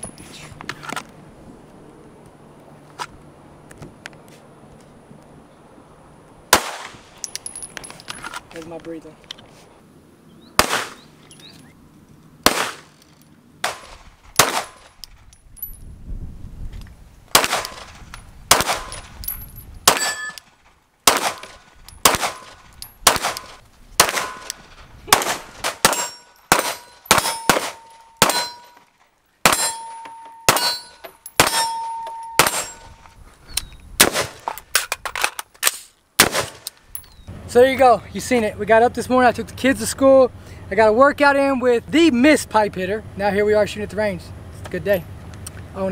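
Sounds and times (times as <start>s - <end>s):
gunshots: 6.5s - 7.1s, 10.6s - 11.1s, 12.4s - 13.0s, 13.6s - 15.0s, 17.3s - 19.2s, 19.8s - 20.4s, 21.0s - 28.6s, 29.4s - 31.8s, 32.4s - 32.9s, 34.0s - 34.5s, 36.2s - 36.6s
metallic ring: 18.8s - 20.4s, 25.9s - 28.8s, 29.5s - 33.0s.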